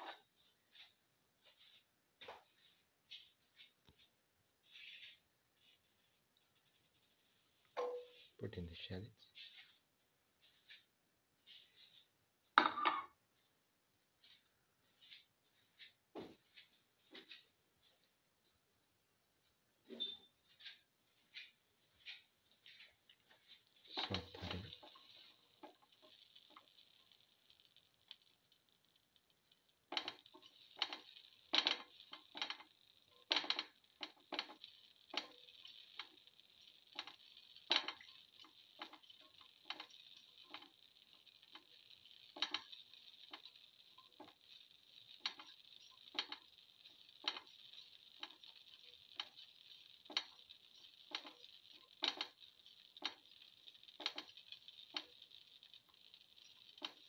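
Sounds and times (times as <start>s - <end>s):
oil sizzling: 20.6s - 57.0s
pieces dropping into hot oil: 23.0s - 57.0s.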